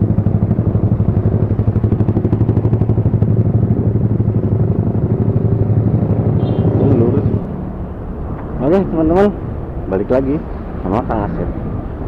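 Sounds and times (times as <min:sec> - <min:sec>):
motorcycle engine running: 0:00.0 - 0:10.4.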